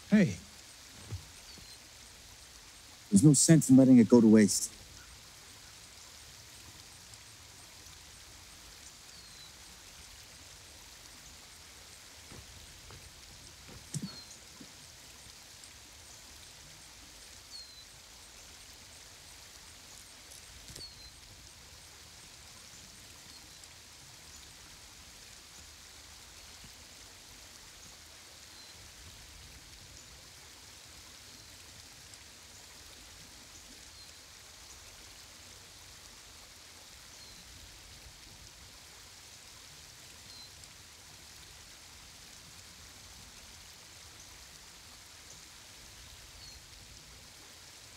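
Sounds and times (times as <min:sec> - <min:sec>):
steady hiss: 0:00.0 - 0:47.9
small bird chirping: 0:01.0 - 0:01.9, 0:13.4 - 0:14.6, 0:20.7 - 0:21.2.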